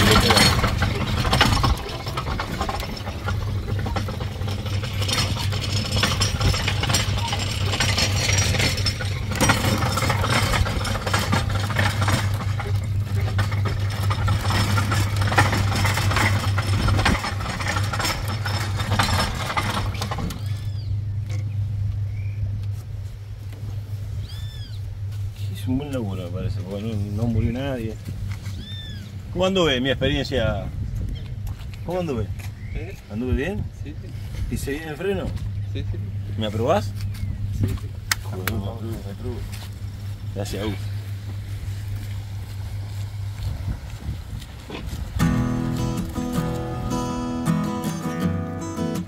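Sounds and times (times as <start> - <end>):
clattering and knocks: 0.0 - 20.7
vehicle engine idling: 0.0 - 49.0.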